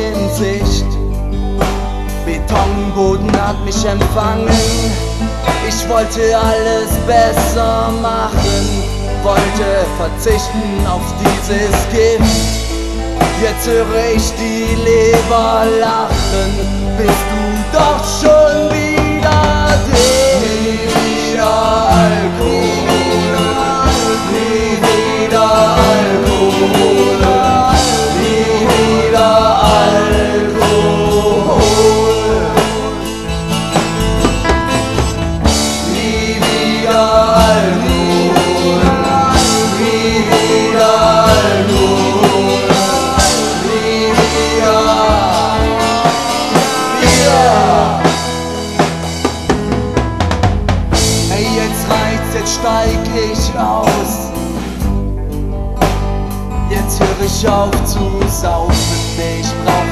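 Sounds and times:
bass guitar: 0.0s - 59.9s
drum kit: 0.0s - 59.9s
pitch-bending lead melody: 18.3s - 52.2s.

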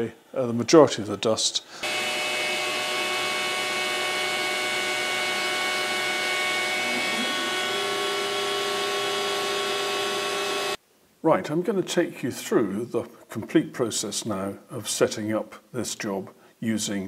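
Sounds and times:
dust extractor air rush: 1.7s - 10.8s
cnc router machine whine: 1.8s - 10.8s
lower machine tone: 1.8s - 10.8s.

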